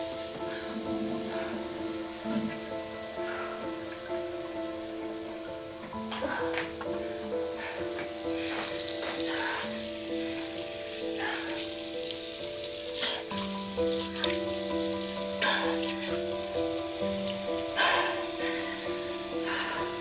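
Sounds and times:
soft music with held notes: 0.0s - 20.0s
tap water running into sink: 8.5s - 19.7s
water splashing: 9.0s - 20.0s.

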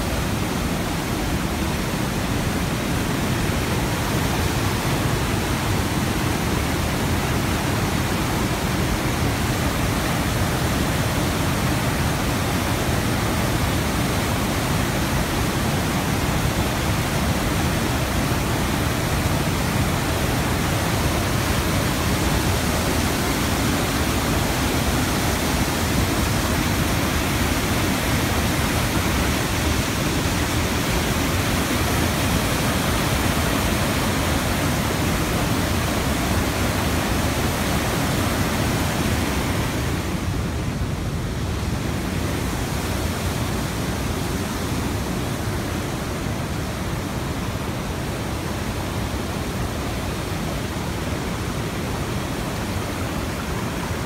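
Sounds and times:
waterfall and rapids rushing: 0.0s - 54.0s.

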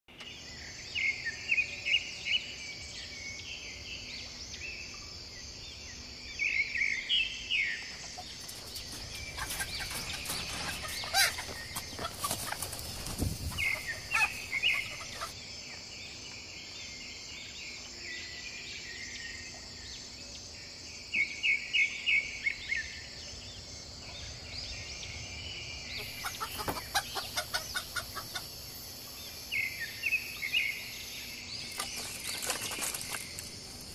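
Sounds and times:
chicken clucking and squawking: 8.0s - 15.4s, 26.0s - 28.6s.

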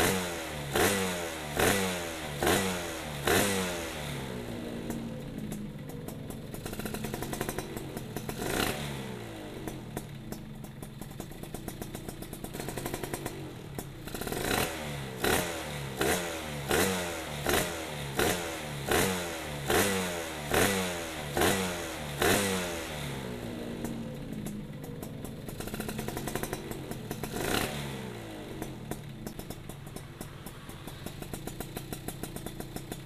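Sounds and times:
two-stroke engine idling and revving: 0.0s - 33.0s.

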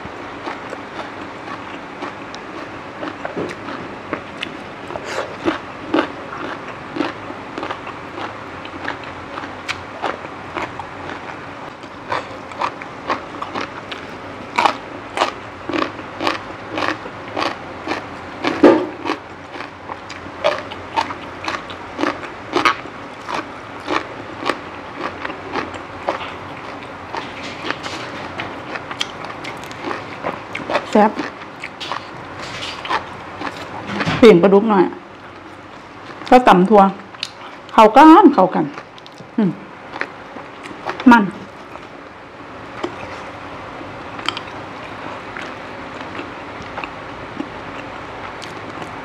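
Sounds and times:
crunching raw vegetables: 0.4s - 34.2s.

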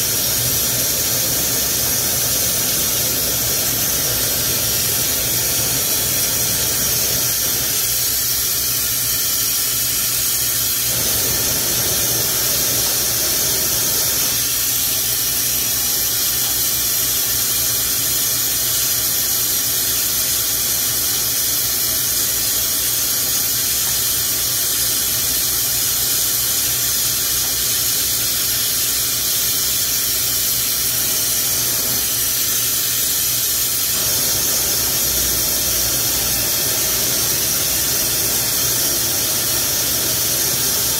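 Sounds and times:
torch flame hissing: 0.0s - 17.4s, 26.6s - 40.9s.

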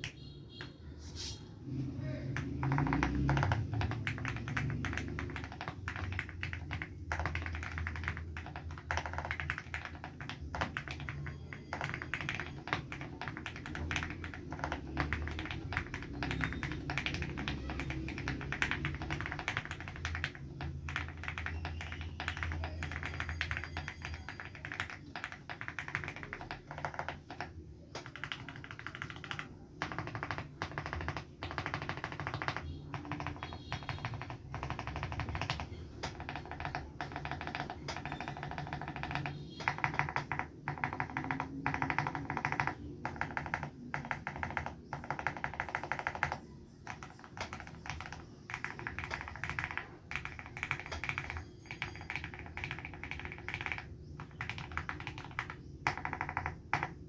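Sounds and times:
fast typing on mechanical keyboard: 0.0s - 0.7s, 1.7s - 57.0s.

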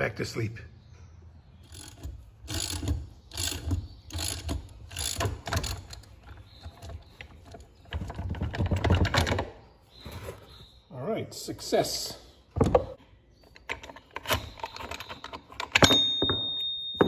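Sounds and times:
ratchet clicking: 1.6s - 6.9s.

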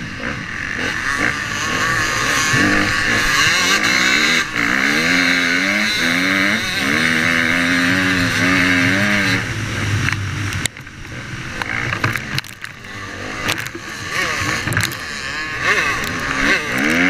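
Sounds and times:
dirt bike engine revving: 0.0s - 17.0s
sharp knocks and clicks: 10.0s - 12.8s, 14.6s - 15.0s.

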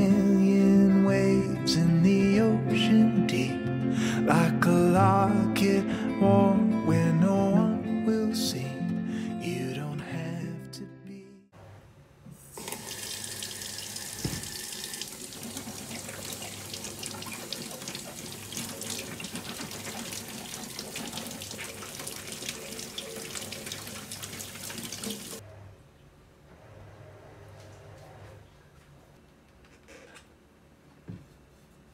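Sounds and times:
tap water splashing into sink: 12.6s - 25.4s.

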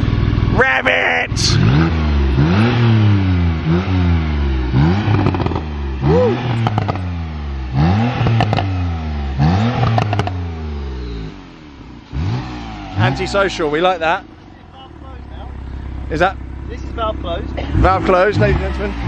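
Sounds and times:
car engine revving: 0.0s - 19.0s
exhaust crackles and pops: 4.7s - 5.8s, 6.5s - 8.8s, 9.4s - 10.4s.

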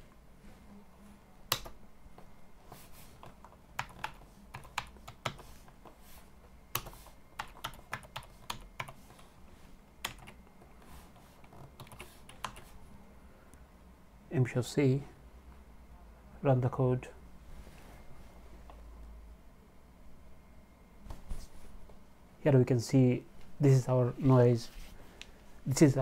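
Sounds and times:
computer keyboard typing: 1.5s - 1.8s, 3.2s - 5.9s, 6.7s - 9.2s, 10.0s - 10.5s, 11.4s - 12.8s.

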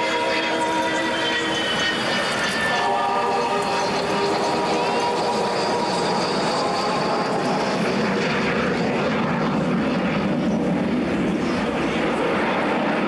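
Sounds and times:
loud jet noise: 0.0s - 13.0s
faint high whine: 0.4s - 8.5s.

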